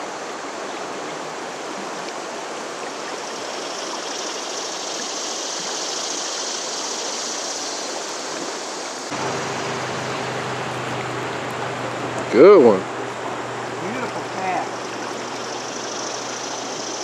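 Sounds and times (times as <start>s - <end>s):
river rushing over rocks: 8.1s - 17.0s
low steady hum: 9.1s - 17.0s.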